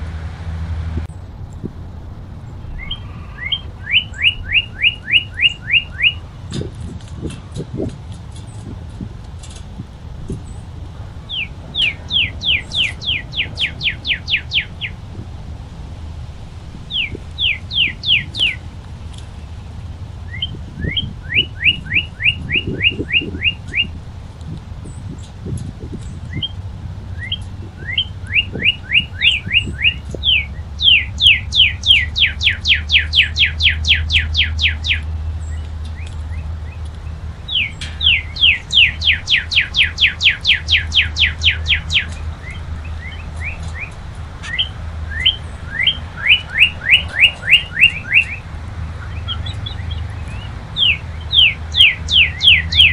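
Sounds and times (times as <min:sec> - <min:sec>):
bird singing whistled notes: 0:02.5 - 0:07.9, 0:11.2 - 0:15.0, 0:16.9 - 0:18.7, 0:20.2 - 0:24.0, 0:25.9 - 0:48.4, 0:49.0 - 0:52.9.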